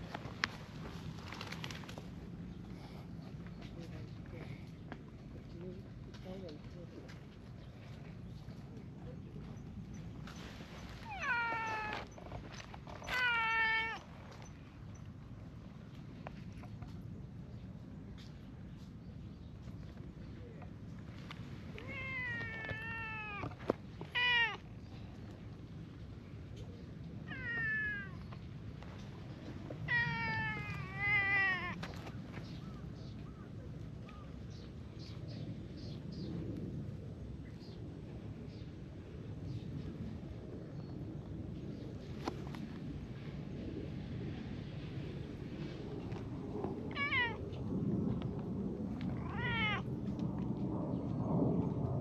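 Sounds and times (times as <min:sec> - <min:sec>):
steady low rumble: 0:00.0 - 0:52.0
cat meowing loudly: 0:11.0 - 0:12.1, 0:13.0 - 0:14.1, 0:21.8 - 0:24.7, 0:27.3 - 0:28.3, 0:29.9 - 0:31.8, 0:46.9 - 0:47.4, 0:49.1 - 0:49.9.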